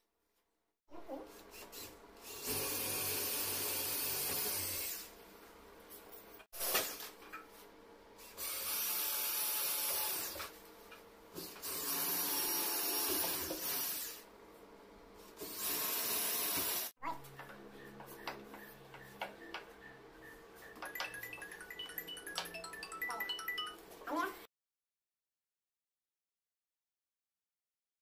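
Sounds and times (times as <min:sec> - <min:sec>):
cordless drill running: 0:01.7 - 0:05.1, 0:08.4 - 0:10.4, 0:11.4 - 0:14.2, 0:15.4 - 0:16.9.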